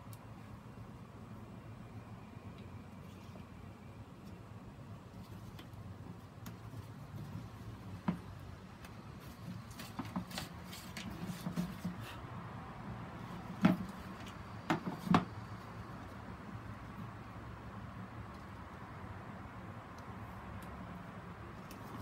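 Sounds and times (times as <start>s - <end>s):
plastic knocks: 14.7s - 15.3s.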